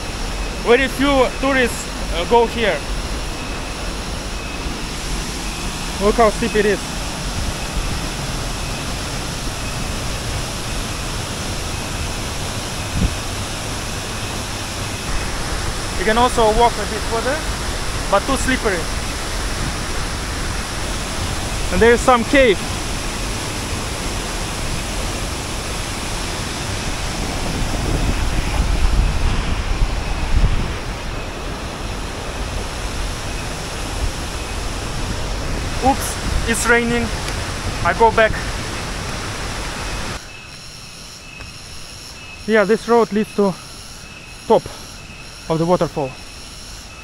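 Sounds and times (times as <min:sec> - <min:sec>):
wind rumble on microphone: 0:00.0 - 0:40.3
waterfall and river rushing: 0:00.0 - 0:40.6
stream flowing: 0:00.0 - 0:46.9.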